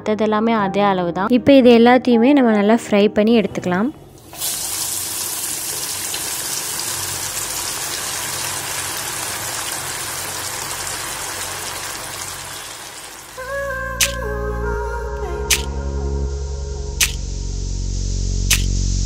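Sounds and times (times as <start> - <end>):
background music: 0.0 - 4.3, 13.4 - 18.7
chicken sizzling in hot oil: 4.2 - 13.4
click: 18.5 - 18.7.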